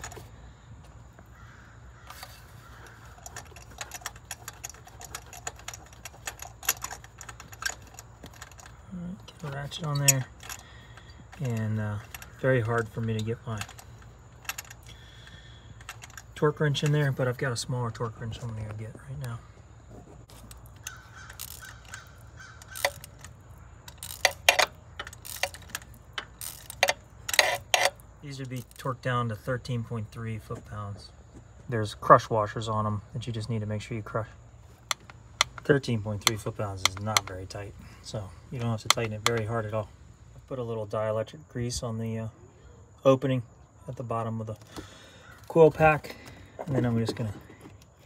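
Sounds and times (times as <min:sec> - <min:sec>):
metallic clicks of spark plug socket: 0:34.8 - 0:39.7.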